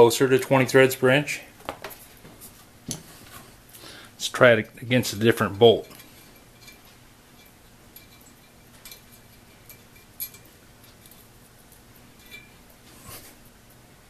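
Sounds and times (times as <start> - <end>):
light metallic clinks and taps: 5.8 - 12.6.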